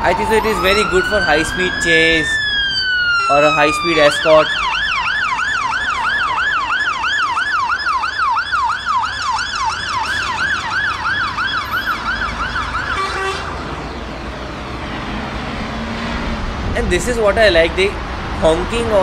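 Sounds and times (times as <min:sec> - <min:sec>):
fire engine siren yelp: 0:00.0 - 0:14.2.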